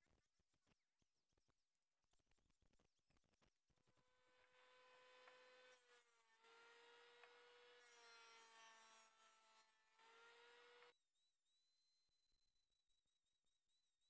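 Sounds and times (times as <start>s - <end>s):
electric hand planer whining: 4.0s - 10.9s.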